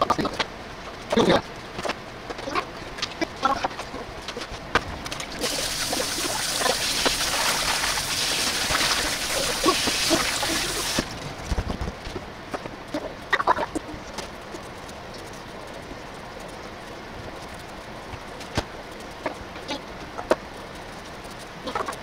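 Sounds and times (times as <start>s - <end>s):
tap water running into sink: 5.4s - 11.0s
potatoes scrubbed by hand: 5.4s - 11.1s.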